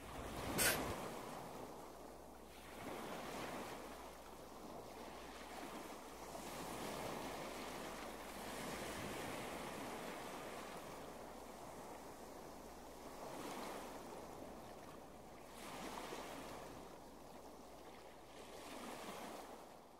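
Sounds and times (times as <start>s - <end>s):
short sharp swish: 0.5s - 1.0s.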